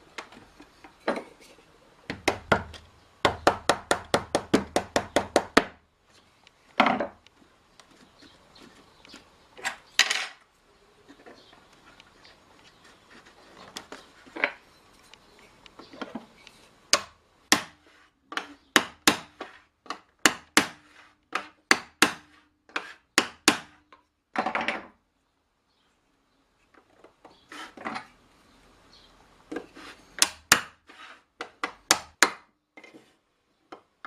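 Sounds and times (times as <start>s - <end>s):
short scrape: 30.9s - 31.3s.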